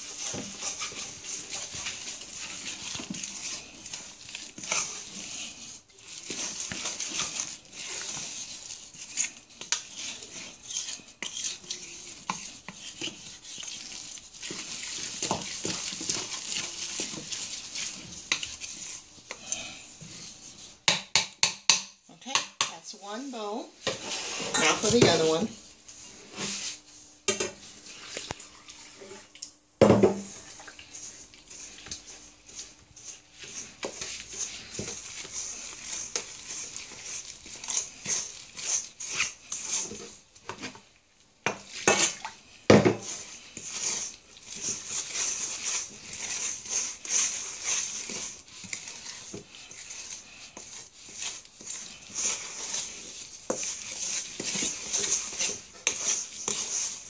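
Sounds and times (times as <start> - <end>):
wooden spoon scraping dough in bowl: 0.0 - 29.3, 30.1 - 57.0.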